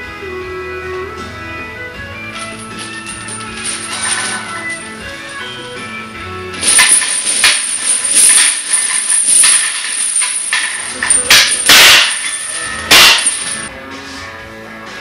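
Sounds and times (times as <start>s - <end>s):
steel chains clanking and rattling: 2.3s - 5.6s, 6.6s - 13.7s
barbell clanging into rack: 6.6s - 13.7s.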